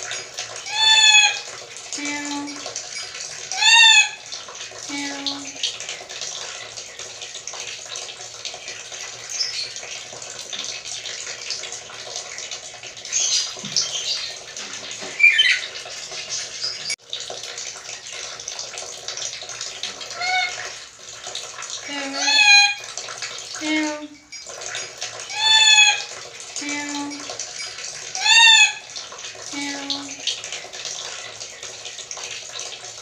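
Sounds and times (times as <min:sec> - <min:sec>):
parrot calls: 0:00.6 - 0:01.5, 0:03.5 - 0:04.2, 0:15.1 - 0:15.8, 0:20.1 - 0:20.6, 0:21.9 - 0:22.8, 0:25.3 - 0:26.1, 0:28.2 - 0:28.9.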